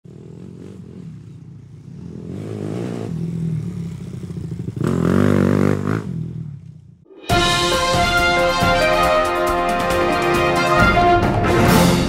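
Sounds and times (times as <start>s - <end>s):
motorcycle engine revving: 0.0s - 7.1s.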